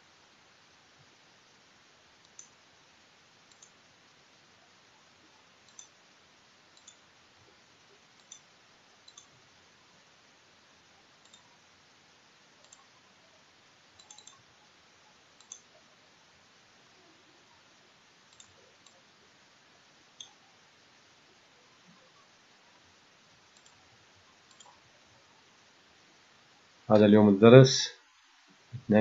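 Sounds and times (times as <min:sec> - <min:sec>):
faint steady hiss: 0:00.0 - 0:29.0
mouse buttons clicking: 0:03.5 - 0:03.8, 0:05.7 - 0:06.0, 0:06.8 - 0:07.0, 0:08.2 - 0:08.5, 0:09.1 - 0:09.3, 0:11.2 - 0:11.4, 0:12.6 - 0:12.9, 0:14.0 - 0:14.4, 0:15.4 - 0:15.7, 0:18.3 - 0:19.0, 0:20.2 - 0:20.4, 0:23.6 - 0:23.8, 0:24.5 - 0:24.8.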